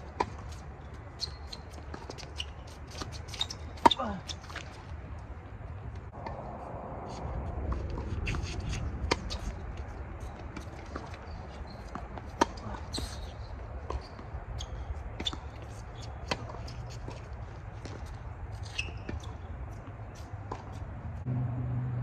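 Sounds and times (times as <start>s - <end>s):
steady low rumble: 4.8s - 10.6s, 20.8s - 22.0s
racket hitting tennis ball: 7.6s - 9.7s, 11.8s - 14.3s, 15.0s - 19.5s.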